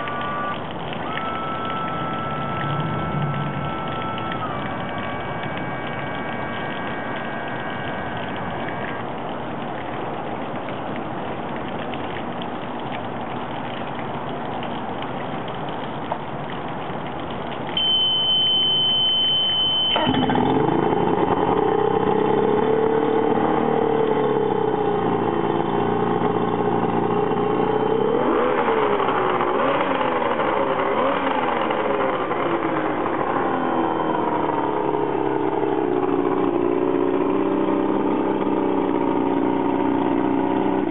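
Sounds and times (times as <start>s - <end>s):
throttle blips: 0.0s - 9.1s, 17.8s - 20.4s
outboard motor starting and idling: 0.0s - 40.9s
high beep: 17.8s - 20.3s.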